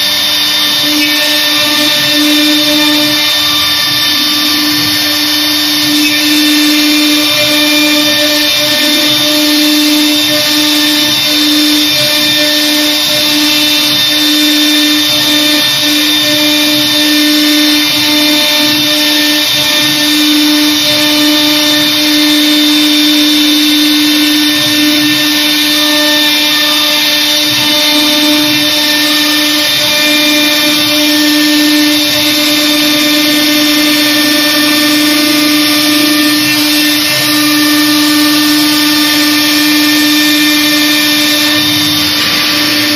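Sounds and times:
router spindle whining: 0.0 - 42.9.

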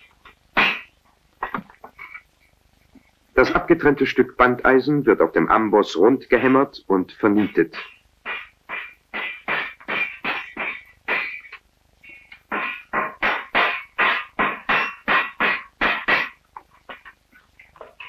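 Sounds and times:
hammer striking iron on anvil: 13.0 - 16.4.

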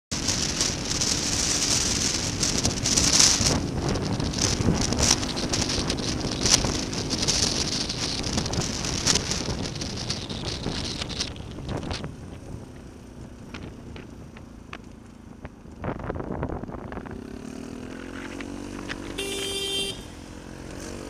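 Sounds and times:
motorcycle engine hum: 0.1 - 21.0
wind buffeting the microphone: 0.2 - 14.4, 15.3 - 17.4.

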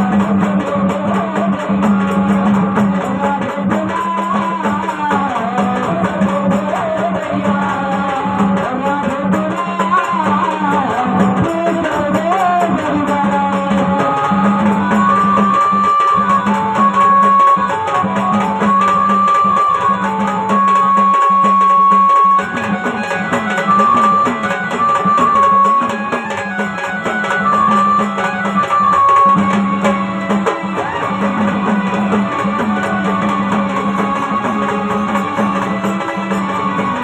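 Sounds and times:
man singing: 0.0 - 22.7
hand drum: 0.0 - 37.0.

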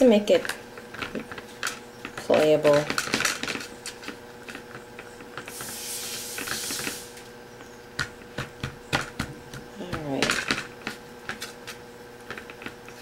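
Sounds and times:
soft hissing rustle: 5.4 - 7.3
fingers tapping on plastic: 8.0 - 11.4.

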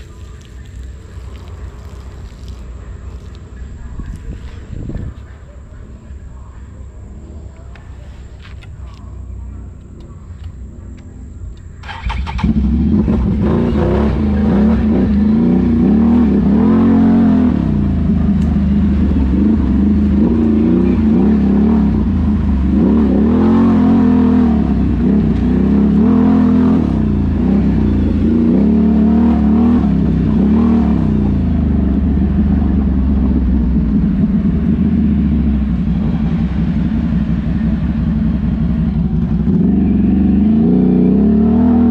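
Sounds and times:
atv engine revving: 9.8 - 41.9.

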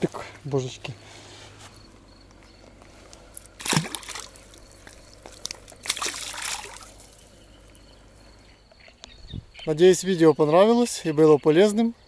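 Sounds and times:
splashes in shallow water: 3.6 - 7.2.

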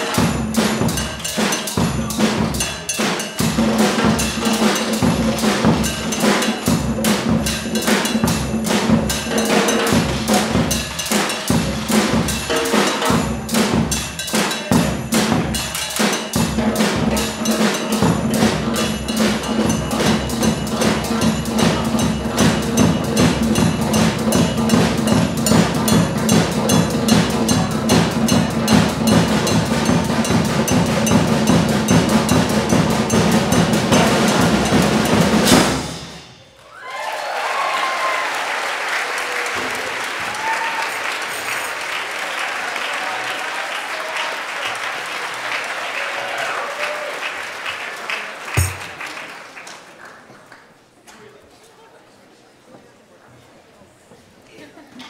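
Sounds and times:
percussion ensemble playing drums: 0.0 - 36.6, 39.2 - 47.4, 48.5 - 49.2
cheering: 36.6 - 50.2
audience applauding: 36.6 - 50.9.

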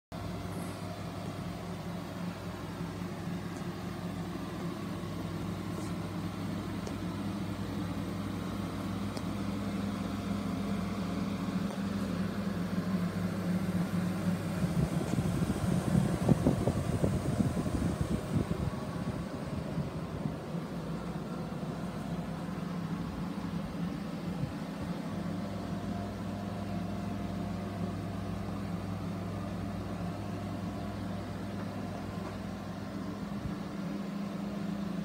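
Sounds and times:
low mechanical hum: 0.1 - 35.0.

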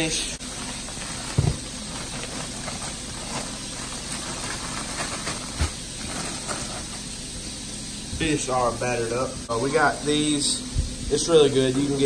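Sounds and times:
plastic bag crinkling: 0.4 - 7.2.

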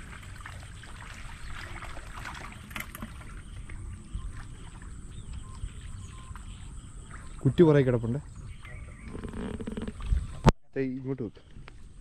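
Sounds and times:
small water splashes: 0.0 - 10.5
water swishing and lapping: 0.0 - 10.5.

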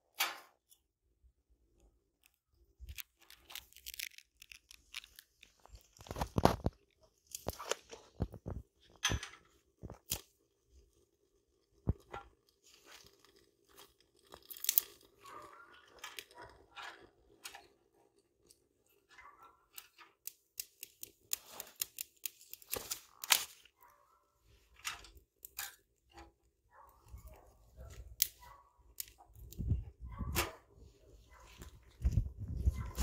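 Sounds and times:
dry sticks snapping: 2.2 - 6.6, 9.9 - 10.3, 14.4 - 14.9, 19.8 - 23.7, 27.9 - 29.7.

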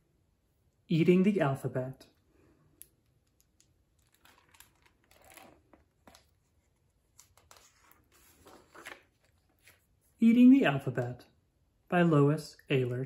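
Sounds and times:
book pages turning: 3.1 - 10.2.

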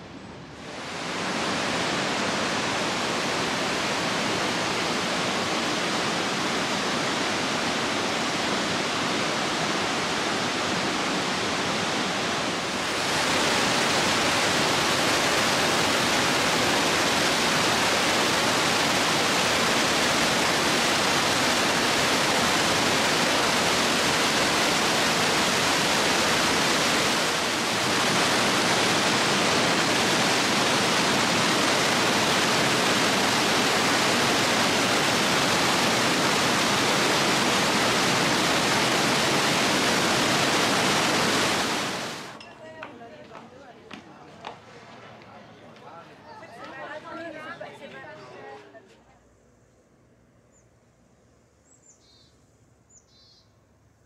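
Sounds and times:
rushing water: 0.0 - 42.4.

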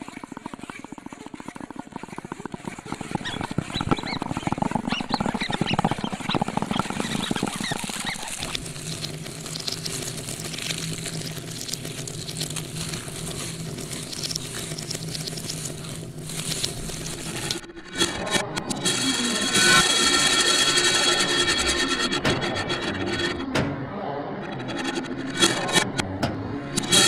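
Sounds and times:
rapid chattering clicks: 0.0 - 18.0
squeaky chirps: 3.1 - 17.6.

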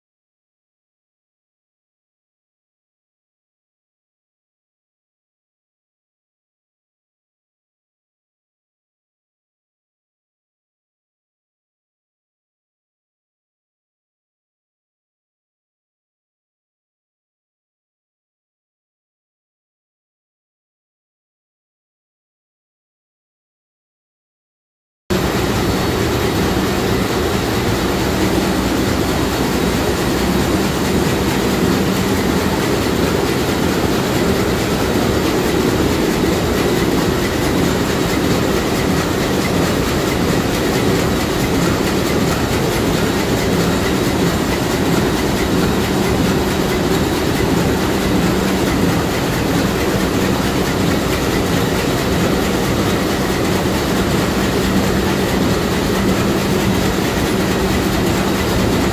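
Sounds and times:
marine diesel engine running: 25.1 - 58.9.

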